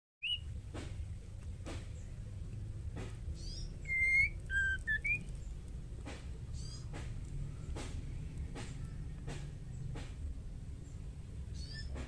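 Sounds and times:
bird whistling: 0:00.2 - 0:00.5, 0:03.4 - 0:05.3, 0:11.6 - 0:12.0
steady low rumble: 0:00.4 - 0:11.6.

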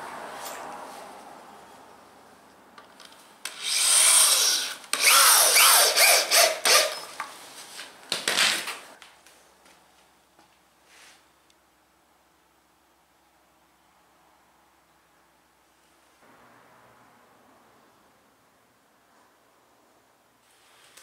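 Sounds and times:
power drill boring into wood: 0:03.5 - 0:07.1.

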